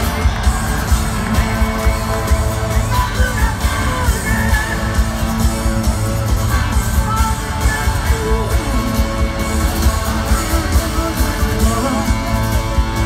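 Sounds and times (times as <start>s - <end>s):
live rock band playing: 0.0s - 13.0s.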